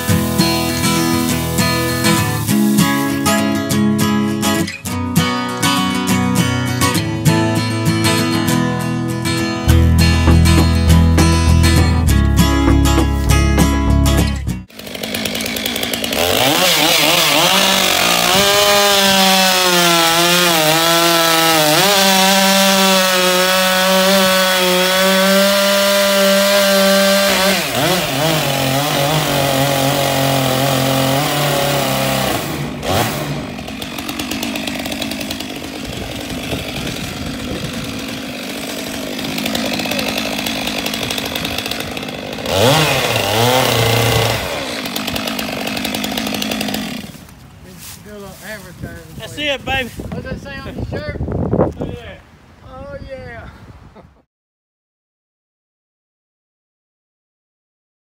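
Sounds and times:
chainsaw cutting log: 0:00.0 - 0:04.8, 0:09.7 - 0:47.6.

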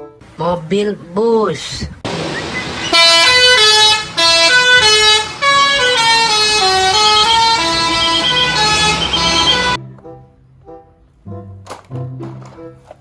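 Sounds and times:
musical vehicle horn tune: 0:02.9 - 0:09.8.

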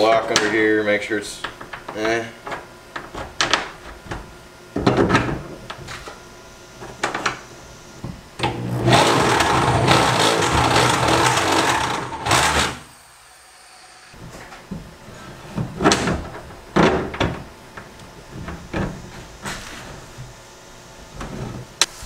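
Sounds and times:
cordless drill drilling into metal: 0:08.5 - 0:12.9.

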